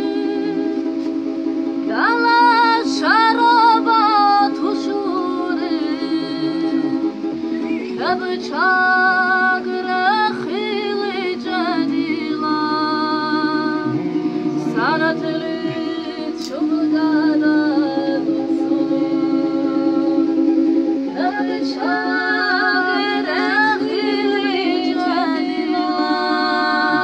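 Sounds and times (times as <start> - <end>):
women singing together: 0.0 - 1.0, 1.8 - 27.0
plucked string instrument strummed: 13.1 - 16.7.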